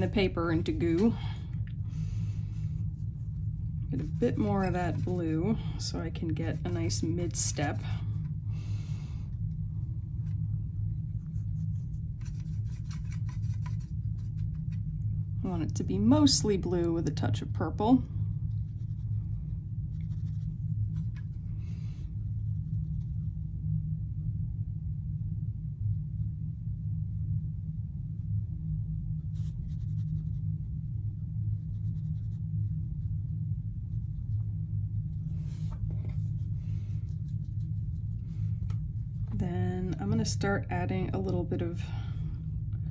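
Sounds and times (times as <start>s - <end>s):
brush scrubbing paint in palette: 0.0s - 8.4s, 9.5s - 15.3s, 18.4s - 23.5s, 29.2s - 39.4s
steady low hum: 0.0s - 42.9s
paper towel rustling: 3.2s - 8.1s, 11.2s - 14.9s.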